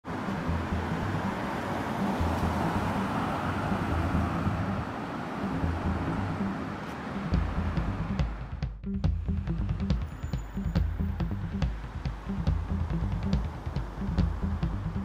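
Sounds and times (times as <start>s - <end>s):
hiss of passing cars: 0.1s - 7.4s
low engine rumble: 0.1s - 15.0s.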